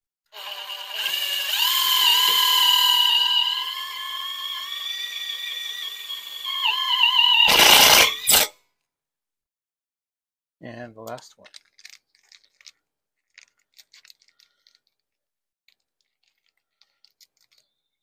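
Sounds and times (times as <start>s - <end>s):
impact driver motor whining: 0.3s - 8.4s.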